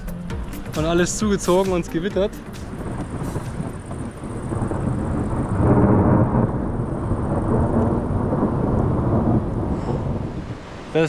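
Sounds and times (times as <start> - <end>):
thunder rumbling: 2.6 - 11.0.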